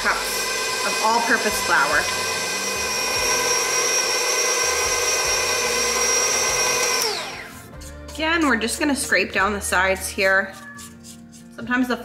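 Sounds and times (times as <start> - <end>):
stand mixer motor whining: 0.0 - 7.5.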